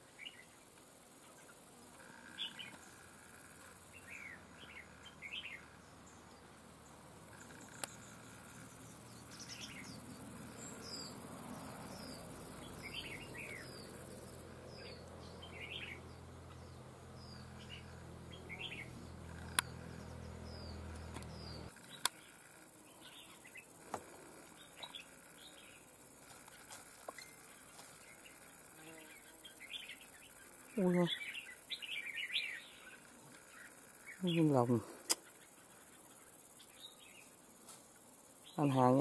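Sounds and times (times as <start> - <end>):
bulbuls chirping: 0.0 - 39.0.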